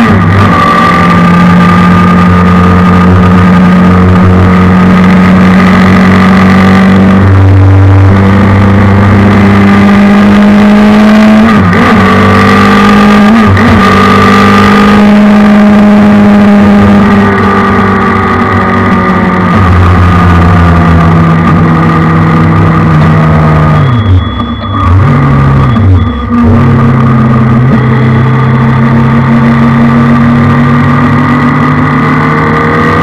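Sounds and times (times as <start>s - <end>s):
race car engine at full throttle: 0.0s - 33.0s.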